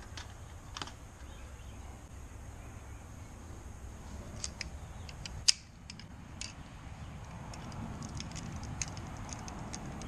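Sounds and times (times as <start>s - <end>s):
pliers clicking on concrete: 7.3s - 10.0s.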